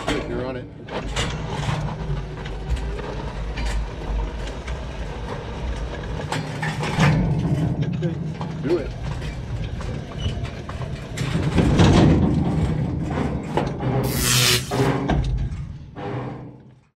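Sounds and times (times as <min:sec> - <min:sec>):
electric vehicle drivetrain whine: 0:01.0 - 0:07.6
burst of hiss: 0:14.0 - 0:14.9.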